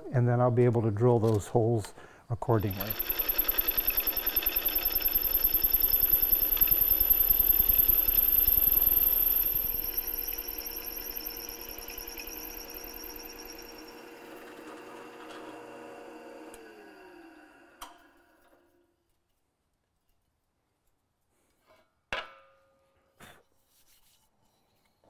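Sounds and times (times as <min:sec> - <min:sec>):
drill bit chattering through metal: 0:02.5 - 0:14.0
drill press motor hum: 0:02.5 - 0:18.4.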